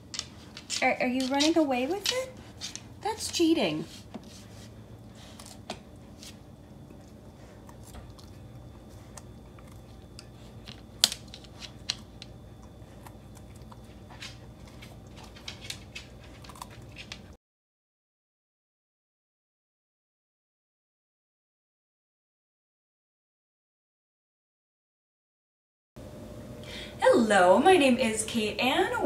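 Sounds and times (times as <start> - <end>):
dog chewing crunchy vegetable: 0.0 - 17.4.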